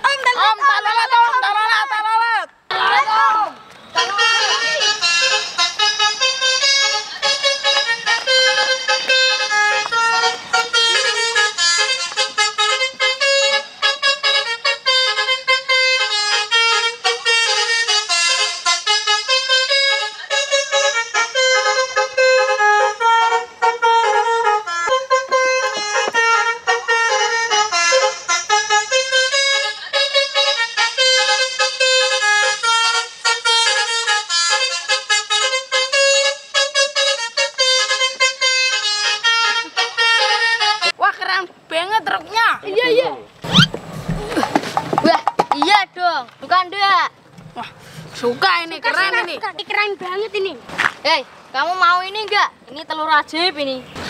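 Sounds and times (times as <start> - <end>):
horn playing fast tune: 3.9 - 40.9.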